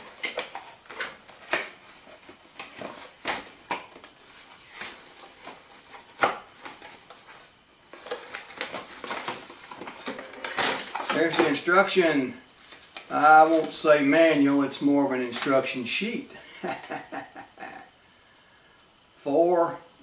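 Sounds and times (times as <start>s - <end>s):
packaging crinkling: 0.0s - 12.0s.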